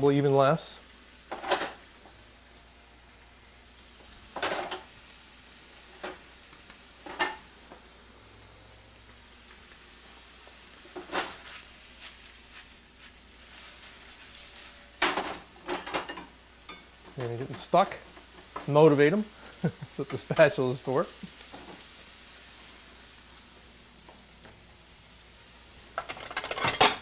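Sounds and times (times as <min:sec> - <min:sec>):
chicken sizzling in frying pan: 0:00.0 - 0:27.0
clatter and scraping in pan: 0:01.3 - 0:01.8, 0:04.3 - 0:04.9, 0:05.9 - 0:06.2, 0:07.0 - 0:07.5, 0:10.9 - 0:12.7, 0:13.5 - 0:18.7, 0:25.9 - 0:27.0.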